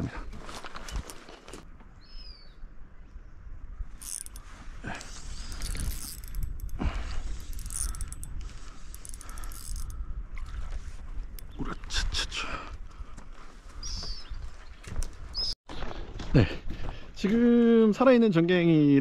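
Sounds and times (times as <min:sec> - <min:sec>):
fishing tackle clicking and rattling: 0:04.0 - 0:04.4, 0:05.0 - 0:10.0.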